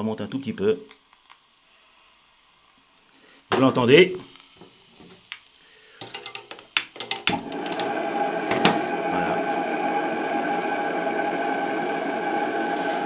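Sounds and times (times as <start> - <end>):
gas flame rushing: 3.3 - 13.0.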